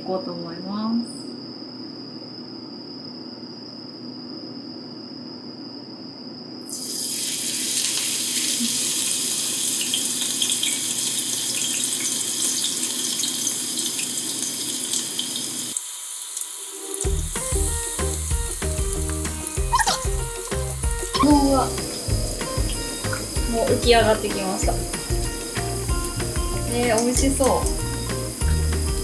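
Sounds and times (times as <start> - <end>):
batter frying in hot oil: 6.7 - 29.0
background music with a beat: 17.1 - 29.0.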